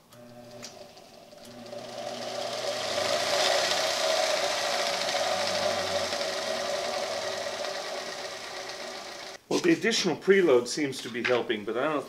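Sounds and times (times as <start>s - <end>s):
belt grinder motor running: 0.0s - 9.4s
abrasive belt hissing: 0.8s - 9.4s.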